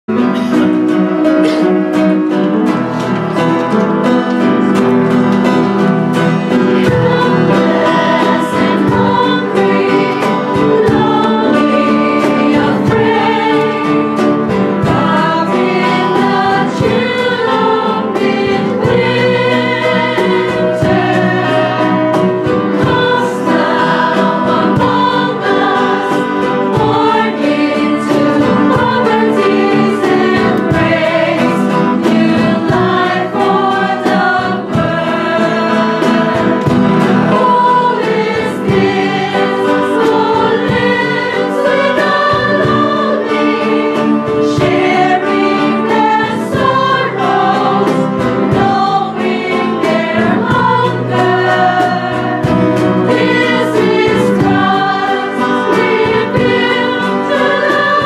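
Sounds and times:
mixed choir singing a carol: 0.1 - 58.0.

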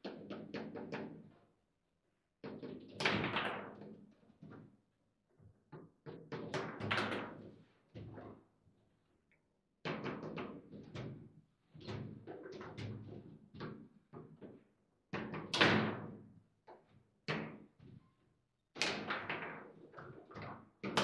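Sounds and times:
table football ball knocks and clacks: 5.7 - 8.2.

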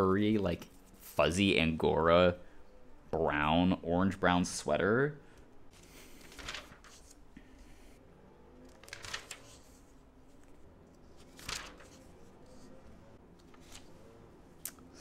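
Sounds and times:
paper pages rustling: 5.7 - 7.2, 8.7 - 12.8, 13.4 - 14.0.

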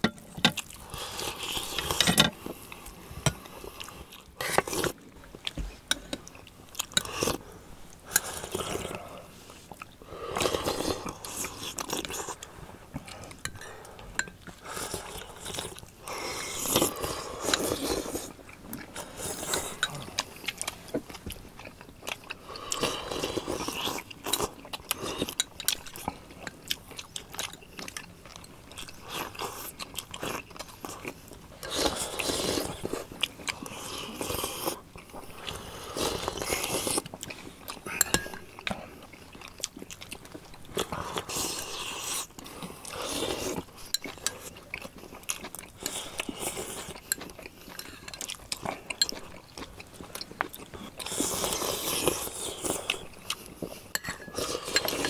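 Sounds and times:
people chewing and biting: 0.0 - 55.0
spoons clicking against bowls: 54.0 - 55.0.

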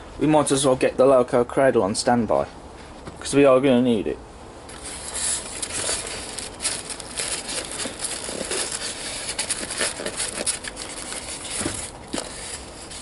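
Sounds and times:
packaging rustling and crinkling: 4.7 - 13.0.

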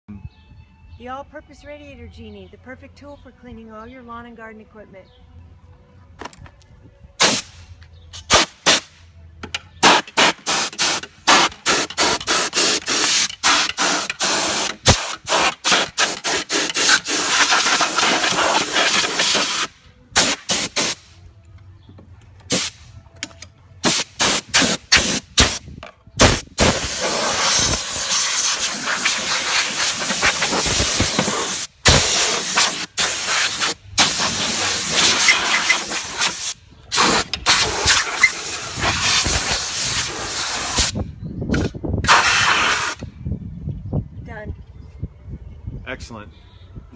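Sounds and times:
water jet spraying: 9.8 - 21.0, 26.6 - 40.9.

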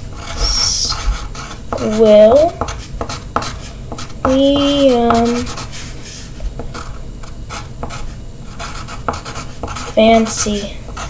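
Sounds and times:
pencil writing on paper: 0.1 - 5.9, 6.6 - 11.0
drawn-out vocal sound: 0.3 - 1.1.

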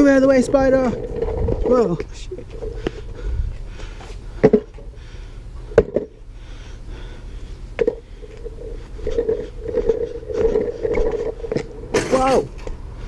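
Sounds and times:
skateboard wheels rolling on bricks: 0.0 - 3.2, 7.8 - 12.8.

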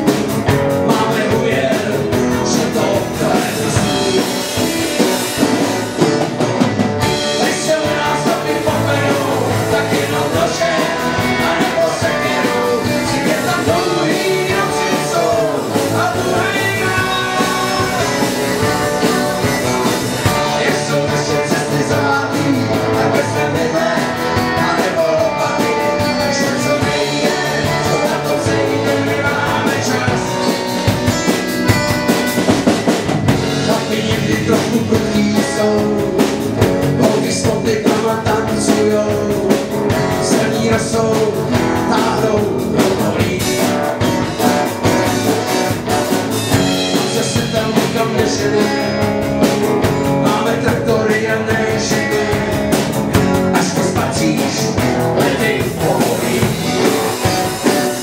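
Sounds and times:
man singing: 0.0 - 6.2, 7.0 - 31.2, 33.3 - 58.0
acoustic guitars strumming: 0.0 - 58.0
boy singing: 7.4 - 19.4.

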